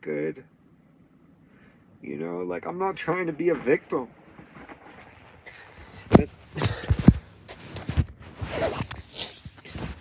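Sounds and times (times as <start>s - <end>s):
phone handling bumps and rustles: 3.4s - 10.0s.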